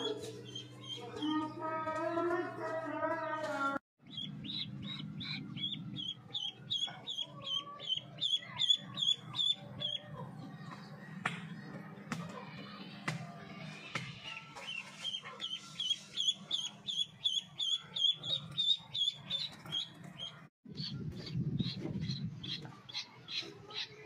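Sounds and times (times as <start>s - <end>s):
duckling peeping: 0.0s - 1.6s, 4.0s - 10.2s, 14.7s - 24.0s.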